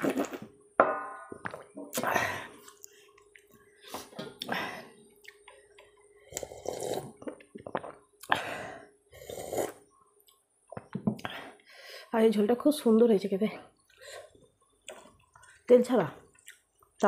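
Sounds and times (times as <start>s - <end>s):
slurping and gulping: 6.2s - 9.9s.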